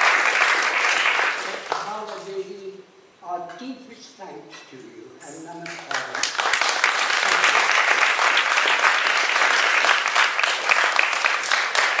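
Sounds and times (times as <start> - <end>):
audience applauding: 0.0 - 2.3, 5.6 - 12.0.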